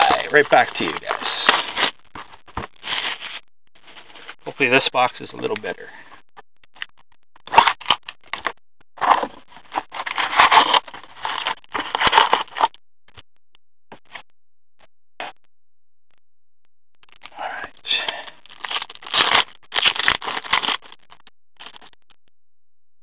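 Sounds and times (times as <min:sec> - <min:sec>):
plastic and foil wrapping crinkling: 0:00.0 - 0:05.8, 0:07.5 - 0:12.7, 0:17.2 - 0:21.9.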